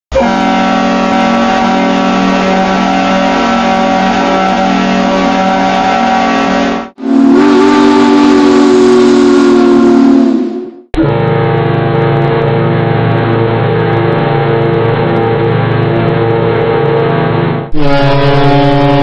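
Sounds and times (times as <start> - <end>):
train whistle chord: 0.1 - 12.1, 17.7 - 19.0
lower train whistle chord: 0.1 - 12.4, 17.7 - 19.0.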